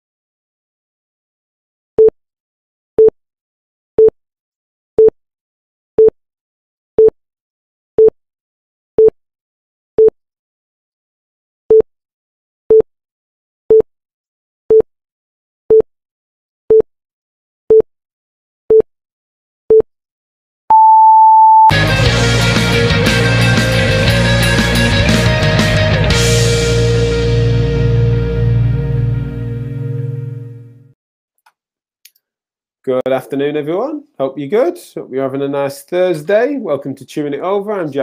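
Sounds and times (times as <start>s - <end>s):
short timer beeps: 20.7s - 21.7s
long high beep: 20.7s - 21.8s.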